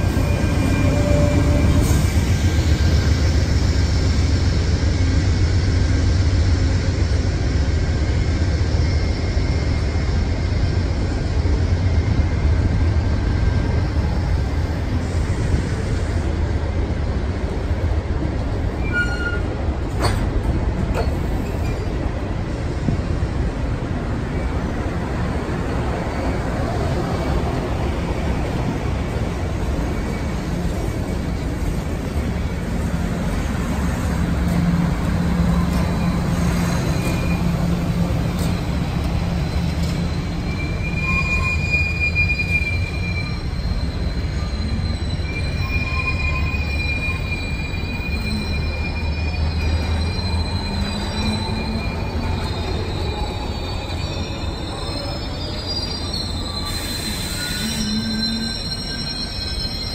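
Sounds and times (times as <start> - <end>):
high-pitched wheel squeal: 0.0 - 3.4, 18.8 - 19.5, 34.5 - 59.9
railcars rumbling past: 0.0 - 59.9.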